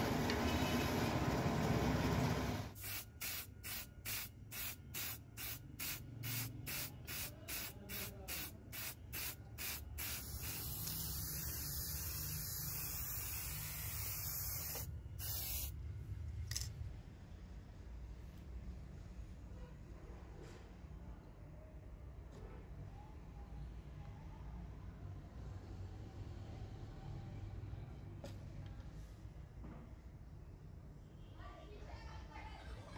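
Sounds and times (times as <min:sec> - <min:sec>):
spray paint can hissing: 0:02.8 - 0:15.7.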